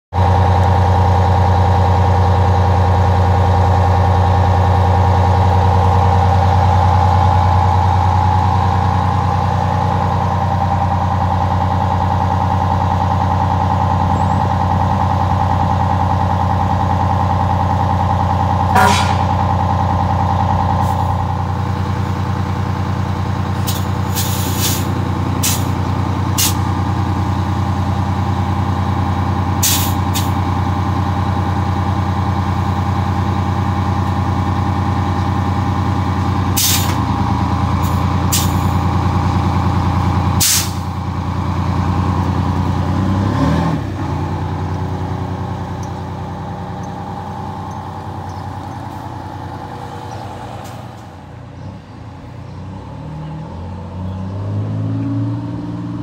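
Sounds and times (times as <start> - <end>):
diesel engine idling: 0.1 - 54.6
short sharp sounds: 18.8 - 19.4.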